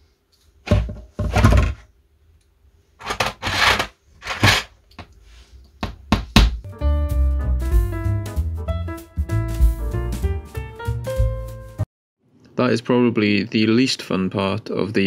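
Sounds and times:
clattering and knocking: 0:00.6 - 0:01.8, 0:03.0 - 0:04.7.

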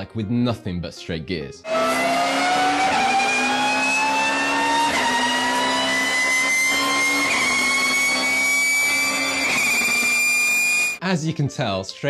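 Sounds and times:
race car engine: 0:01.7 - 0:11.0
race car gearbox whining: 0:01.7 - 0:11.0.

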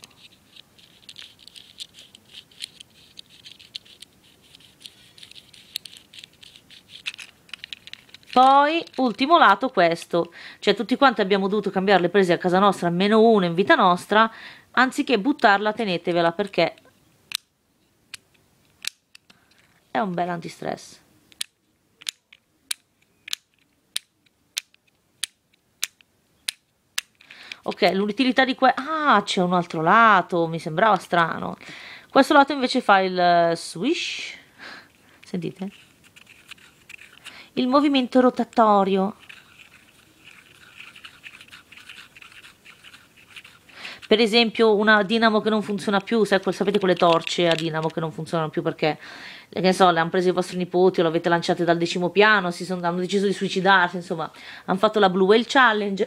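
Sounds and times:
fidget cube gear clicks: 0:00.0 - 0:10.3, 0:18.8 - 0:19.4, 0:21.3 - 0:28.0, 0:35.5 - 0:44.2, 0:45.1 - 0:48.0.

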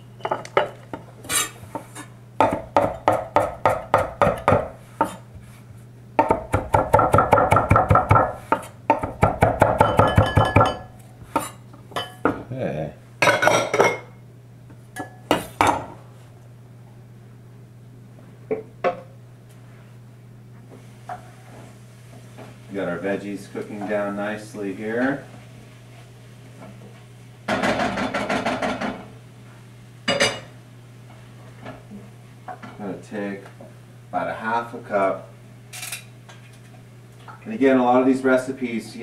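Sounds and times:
steady low hum: 0:00.0 - 0:39.0
knife chopping on cutting board: 0:02.4 - 0:05.2, 0:06.2 - 0:10.7.

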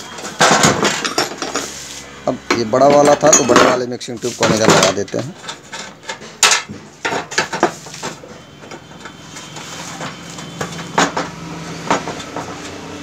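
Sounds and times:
metal clanks and clinks: 0:00.2 - 0:01.7, 0:02.5 - 0:09.2.

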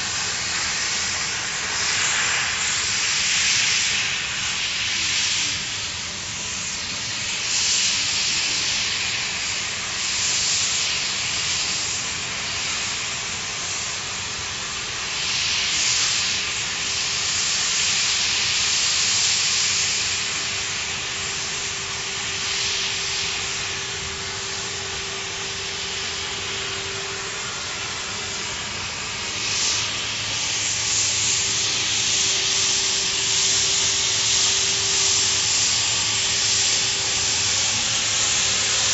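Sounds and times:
cutting torch hissing: 0:00.0 - 0:38.9.

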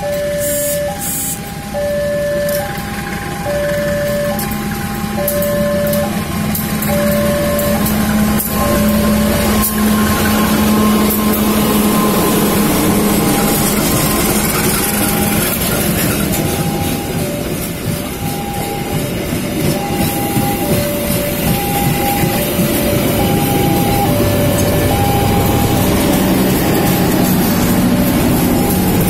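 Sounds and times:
locomotive engine drone: 0:00.0 - 0:29.0
train coaches rolling past: 0:00.0 - 0:29.0
two-tone warning alarm: 0:00.0 - 0:29.0.

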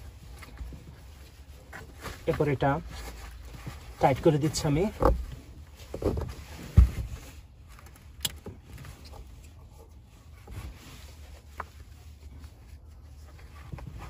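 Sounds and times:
low steady rumble: 0:00.0 - 0:14.0
strap buckle clicks and rustles: 0:07.7 - 0:09.6.

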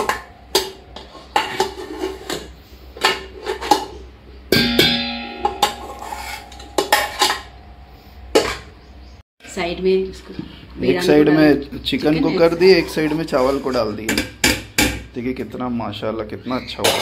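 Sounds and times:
metal spoon clinking on cookware: 0:04.5 - 0:07.6.

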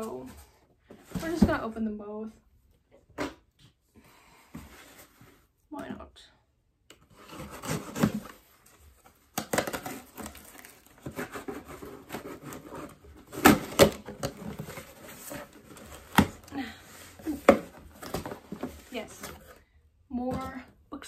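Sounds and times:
packaging being torn and rustled: 0:09.3 - 0:14.6.

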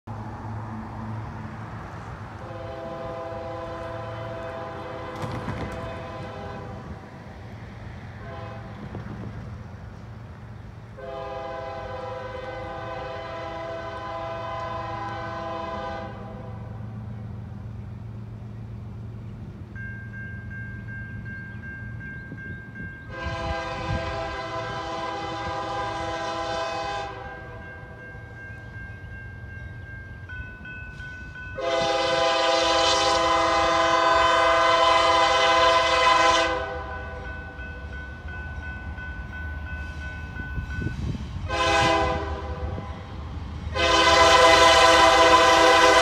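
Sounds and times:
locomotive air horn blasts: 0:02.4 - 0:07.0, 0:08.2 - 0:09.0, 0:11.0 - 0:16.8, 0:23.1 - 0:27.9, 0:31.6 - 0:37.4, 0:41.4 - 0:43.1, 0:43.7 - 0:46.0.

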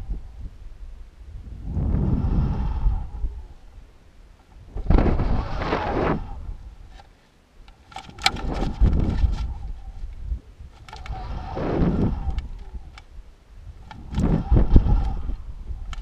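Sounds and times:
wind buffeting microphone: 0:00.0 - 0:07.0, 0:07.9 - 0:16.0
sharp clicks and knocks: 0:06.9 - 0:09.6.

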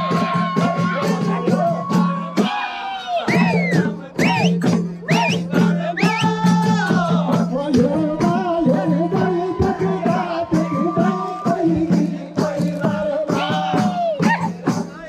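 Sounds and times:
men singing together: 0:00.0 - 0:15.0
jingling frame drum: 0:03.3 - 0:15.0.

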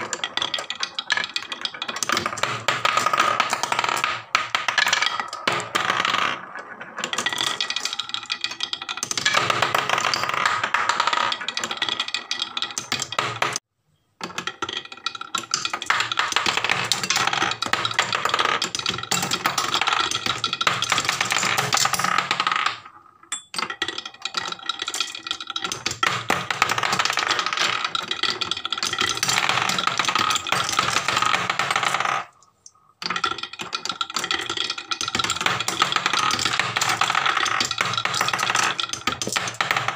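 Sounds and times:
marbles clattering down wooden run: 0:00.0 - 0:13.6, 0:14.2 - 0:39.9.

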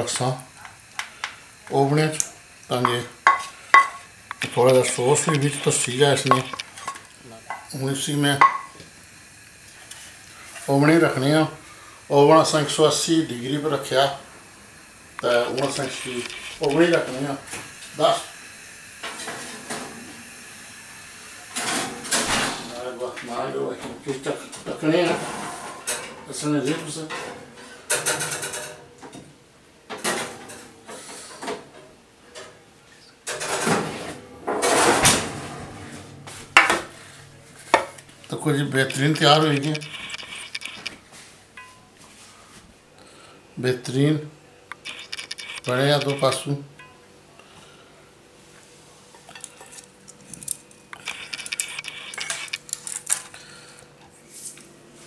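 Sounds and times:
metal tray scraping on oven shelf: 0:25.0 - 0:26.1.

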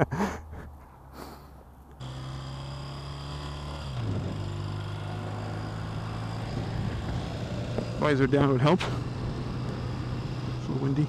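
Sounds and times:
motorcycle engine running: 0:02.0 - 0:11.0
wind noise: 0:04.0 - 0:04.5, 0:06.4 - 0:10.6.

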